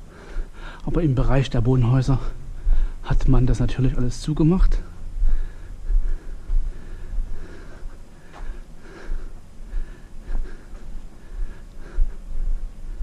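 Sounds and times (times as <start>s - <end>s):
person breathing: 0.0s - 0.9s, 2.2s - 3.1s, 4.7s - 13.0s.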